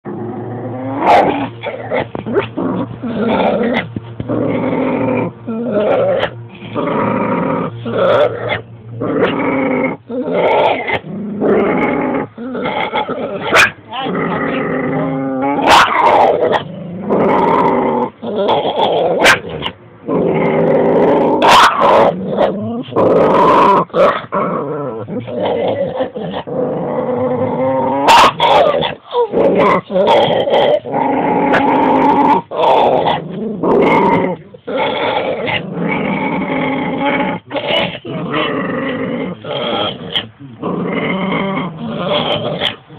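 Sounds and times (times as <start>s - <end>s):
dogs growling and barking: 0.0s - 42.9s
dog yowling: 13.4s - 16.6s, 21.4s - 24.3s.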